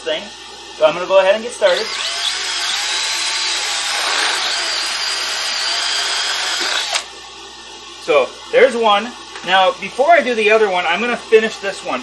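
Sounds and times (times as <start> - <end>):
cordless drill whining: 1.7 - 7.1.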